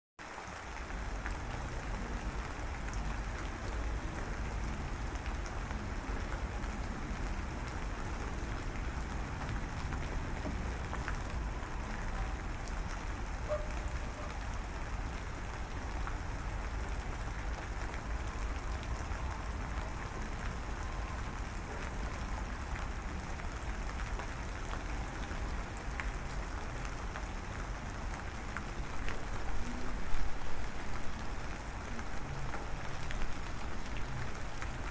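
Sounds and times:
steady rain hiss: 0.2s - 34.9s.

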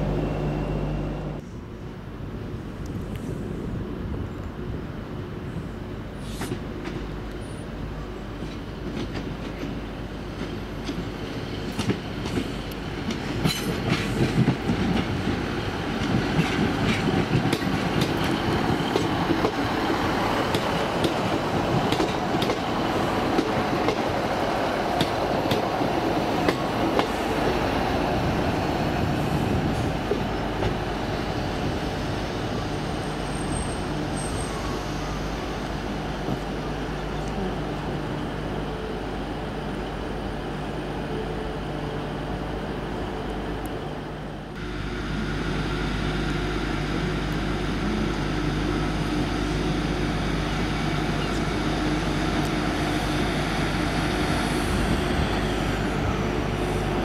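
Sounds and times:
diesel train engine droning: 0.0s - 57.0s
train wheels clicking over rail joints: 10.4s - 27.6s.

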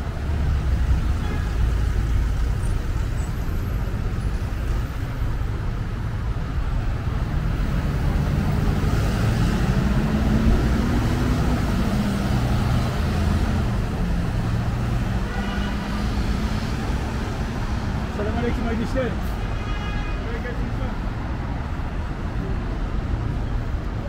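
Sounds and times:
street traffic rumble: 0.0s - 24.0s
engine hum: 1.9s - 15.2s.

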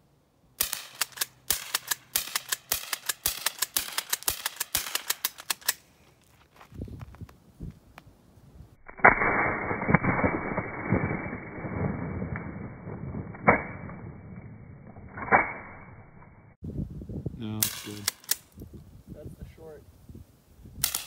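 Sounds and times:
sharp rifle shot: 0.6s - 5.7s, 8.9s - 14.2s.

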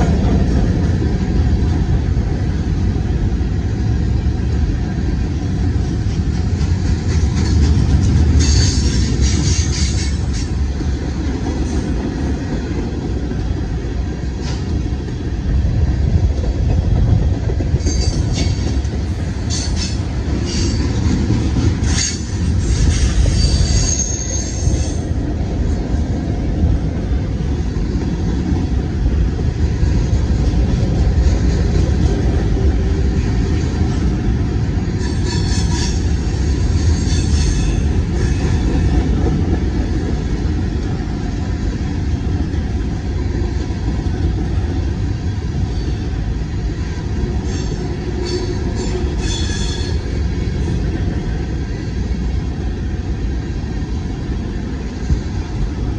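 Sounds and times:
steel wheels rumbling on rail: 0.0s - 55.9s
high-pitched wheel squeal: 21.9s - 25.1s, 35.0s - 38.5s, 47.4s - 50.0s.

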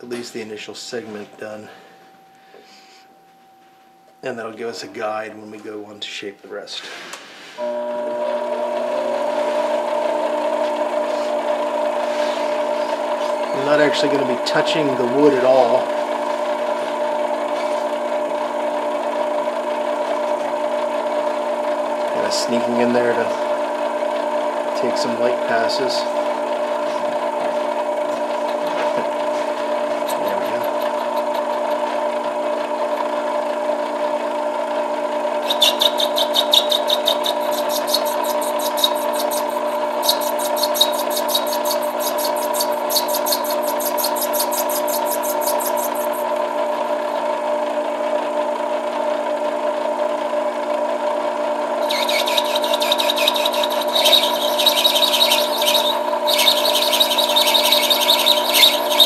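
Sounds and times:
lathe whining: 21.5s - 47.9s, 51.5s - 59.0s
high scratchy cutting chatter: 30.0s - 31.6s, 35.4s - 46.3s, 51.8s - 59.0s.

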